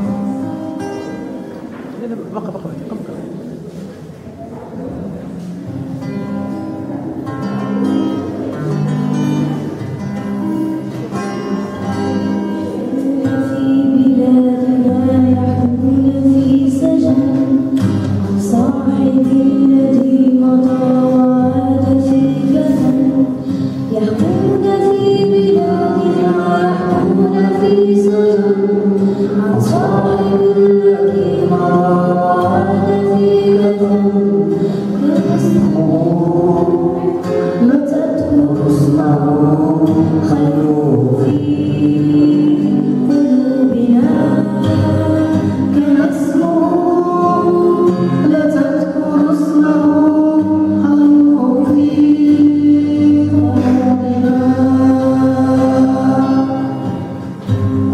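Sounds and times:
acoustic guitar: 0.0s - 57.9s
girl singing: 11.2s - 57.1s.

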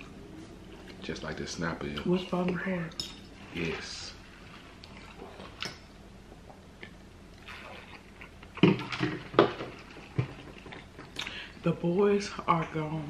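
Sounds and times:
close-miked eating: 0.0s - 11.7s
gulps of drink swallowed: 7.4s - 9.0s.

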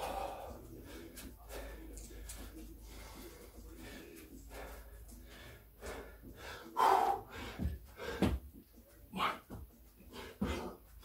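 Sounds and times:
man breathing heavily: 0.0s - 11.0s.

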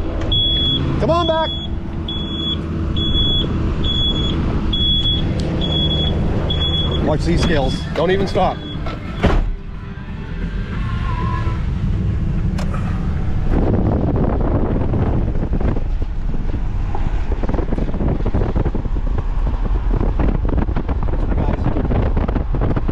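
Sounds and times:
truck engine and road rumble: 0.0s - 22.9s
truck door shutting: 2.1s - 9.6s, 12.5s - 13.1s
wind rushing through window: 11.8s - 22.9s.

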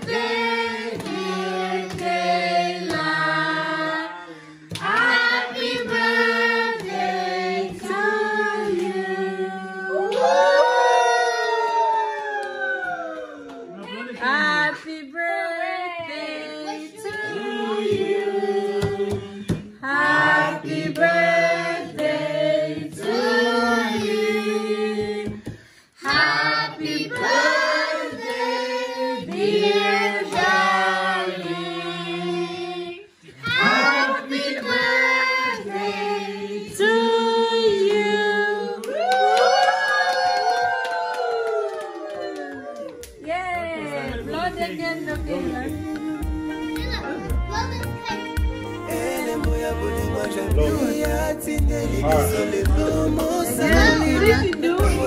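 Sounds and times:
group singing: 0.0s - 10.4s, 14.1s - 39.0s, 48.6s - 55.0s
hands clapping: 0.9s - 1.2s, 4.7s - 5.2s, 12.2s - 14.1s, 21.0s - 21.2s, 38.8s - 43.5s.

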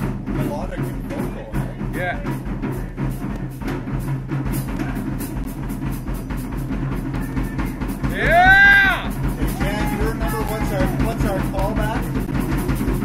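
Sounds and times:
drum kit steady beat: 0.0s - 13.0s
blues-rock band playing: 6.8s - 12.2s
bass guitar: 7.1s - 13.0s.

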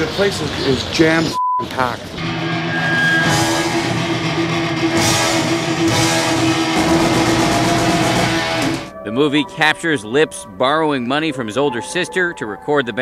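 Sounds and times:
drums: 1.6s - 8.9s
distorted electric guitar: 2.2s - 9.0s
cymbal crashes: 2.3s - 8.9s.

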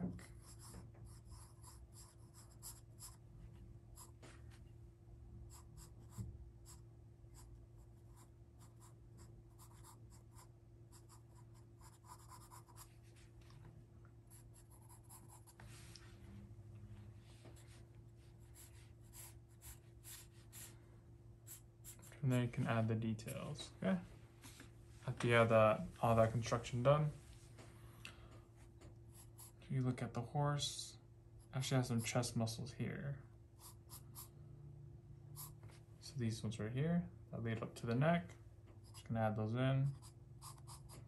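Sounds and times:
steady low hum: 0.0s - 41.0s
pencil scratching on paper: 0.3s - 3.2s, 5.5s - 13.2s, 14.3s - 15.6s, 18.4s - 20.8s, 39.9s - 41.0s.

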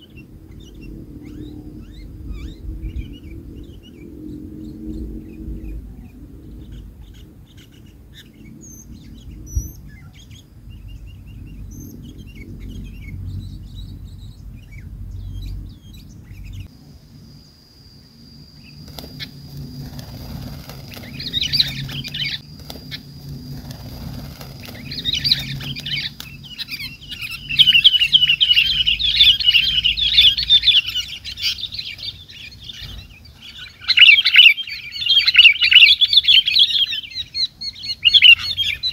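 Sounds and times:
birds chattering calls: 0.0s - 16.7s, 18.5s - 38.9s
wing flaps: 18.7s - 30.5s.

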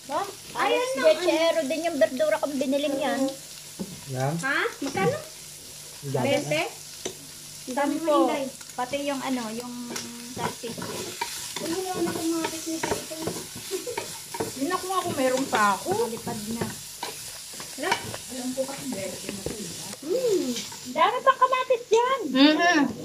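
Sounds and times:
food sizzling in hot oil: 0.0s - 23.0s
utensil clicking against pan: 9.9s - 19.6s.

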